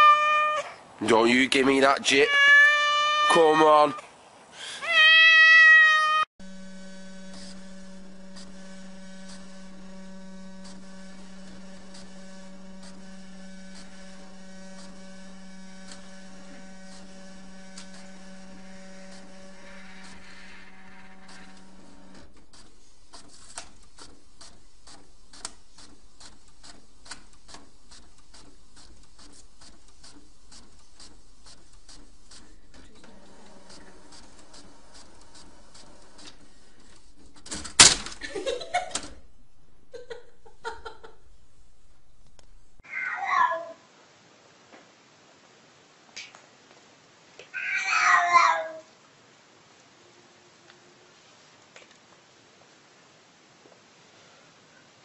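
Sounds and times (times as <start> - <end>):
fax printer printing: 6.4 - 39.3
person laughing: 38.2 - 39.0, 39.9 - 41.2.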